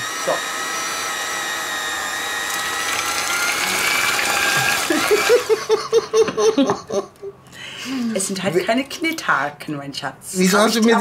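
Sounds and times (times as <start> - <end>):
electric hand mixer whine: 0.0 - 5.9.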